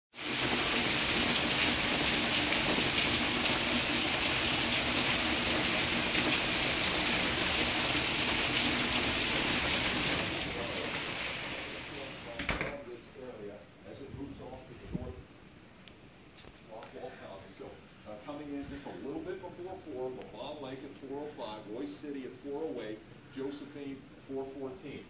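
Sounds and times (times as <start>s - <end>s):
heavy rain pouring: 0.1s - 12.6s.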